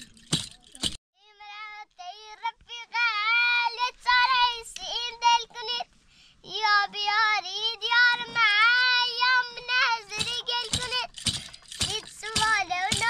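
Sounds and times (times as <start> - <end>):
high-pitched voice singing: 6.4 - 11.2, 11.8 - 13.0.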